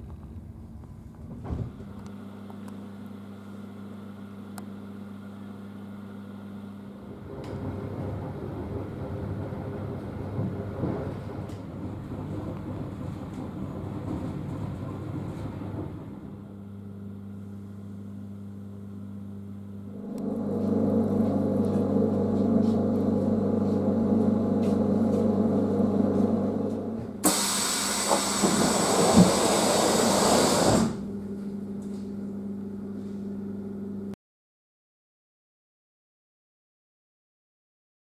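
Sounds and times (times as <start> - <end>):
train equipment humming: 19.8 - 32.4
compressed air hiss: 27.2 - 31.0.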